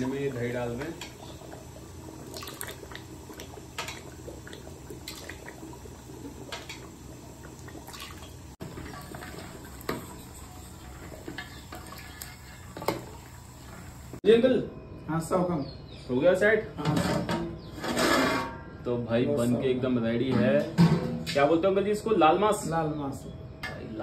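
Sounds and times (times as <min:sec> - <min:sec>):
gravy sloshing: 0:00.0 - 0:14.0
ladle scraping metal pot: 0:16.9 - 0:18.7.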